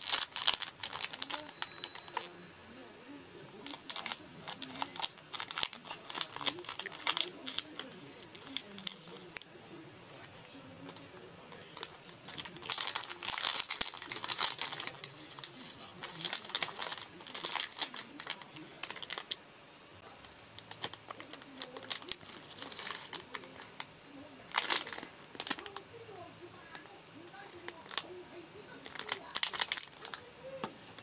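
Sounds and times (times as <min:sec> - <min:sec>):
plastic wrappers crinkling: 0:00.0 - 0:02.3, 0:03.6 - 0:09.6, 0:10.8 - 0:19.4, 0:20.2 - 0:26.1, 0:26.7 - 0:31.0
wrapper tearing: 0:00.0 - 0:02.3, 0:03.6 - 0:09.5, 0:11.5 - 0:19.4, 0:20.6 - 0:23.9, 0:24.5 - 0:25.8, 0:27.6 - 0:28.1, 0:28.8 - 0:30.2.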